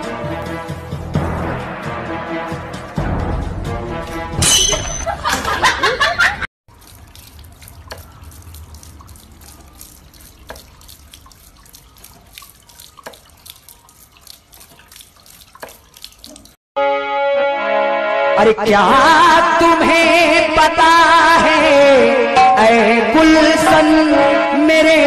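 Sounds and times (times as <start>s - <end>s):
loud music: 0.0s - 4.6s
water splashing on water wheel: 6.7s - 16.6s.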